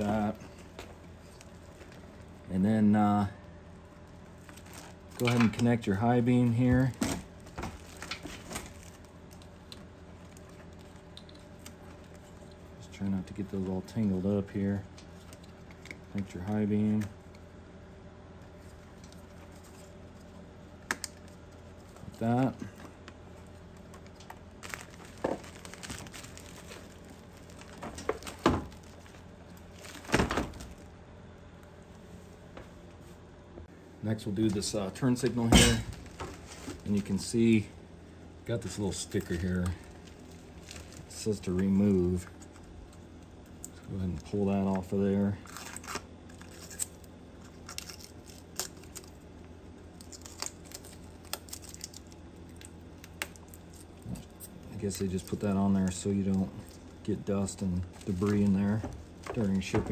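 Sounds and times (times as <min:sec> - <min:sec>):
faint steady hum: 0:00.0 - 0:59.9
sticker peeling ticks and crinkles: 0:07.4 - 0:12.8, 0:18.6 - 0:30.0, 0:38.9 - 0:59.6.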